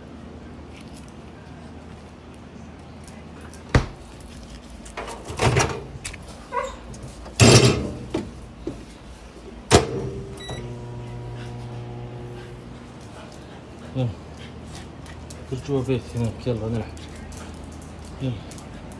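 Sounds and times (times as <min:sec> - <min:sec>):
rustling handling noises: 0:00.5 - 0:07.4
microwave oven humming: 0:09.7 - 0:13.0
microwave beep: 0:10.2 - 0:10.8.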